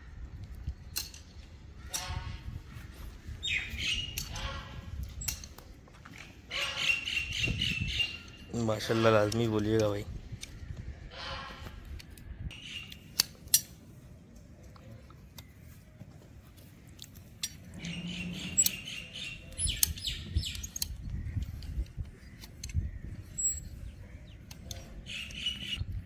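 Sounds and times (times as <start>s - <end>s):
hand tools clicking and scraping: 0.9s - 2.2s, 4.1s - 6.8s, 15.2s - 25.7s
small birds chirping: 2.8s - 4.6s, 6.2s - 8.7s, 12.5s - 13.2s, 14.5s - 26.0s.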